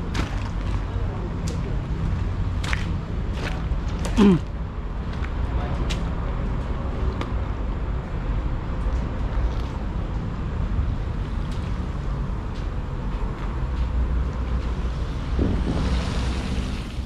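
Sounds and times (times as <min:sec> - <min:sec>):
engine drone: 0:09.7 - 0:17.0.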